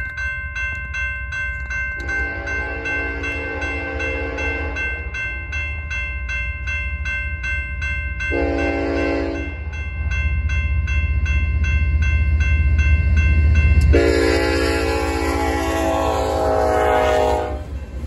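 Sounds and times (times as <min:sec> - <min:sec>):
crossing warning bell ringing: 0:00.0 - 0:18.0
low train rumble: 0:00.0 - 0:18.0
locomotive horn blast: 0:02.0 - 0:05.2, 0:08.3 - 0:09.6, 0:13.8 - 0:17.7.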